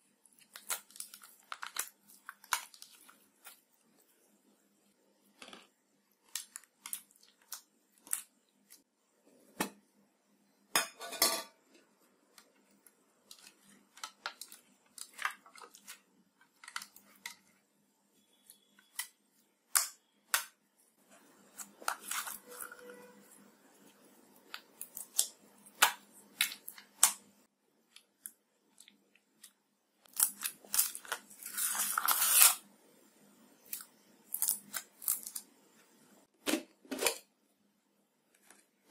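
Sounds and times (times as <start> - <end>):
slime squelching and crackling: 0.2 - 4.1, 21.2 - 27.2.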